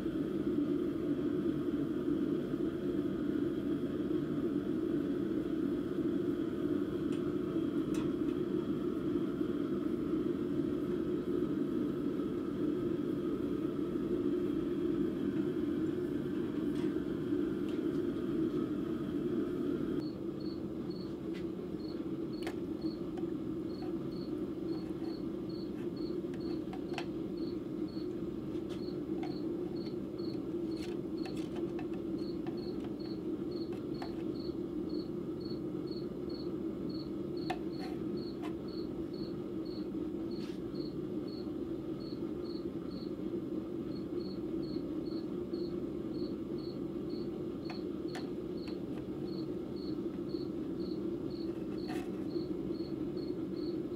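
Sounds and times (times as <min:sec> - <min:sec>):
cricket chirping: 0:20.0 - 0:21.1, 0:21.8 - 0:28.1, 0:28.7 - 0:43.1, 0:43.9 - 0:53.8.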